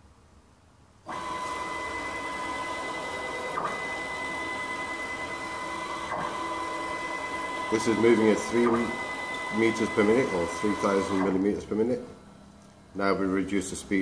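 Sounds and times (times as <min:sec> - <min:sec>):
stepper motor whining: 0:01.1 - 0:11.5.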